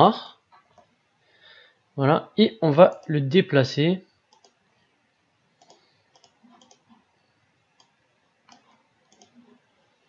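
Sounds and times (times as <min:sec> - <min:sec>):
faint computer mouse clicks: 0:04.3 - 0:04.6, 0:05.6 - 0:07.0, 0:07.8 - 0:09.5.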